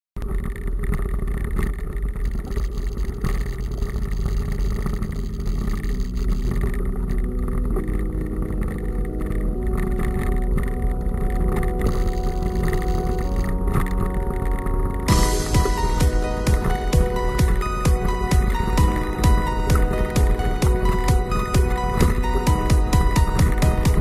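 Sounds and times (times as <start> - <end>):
wind rumble on microphone: 0.2 - 24.0
held music notes: 6.0 - 24.0.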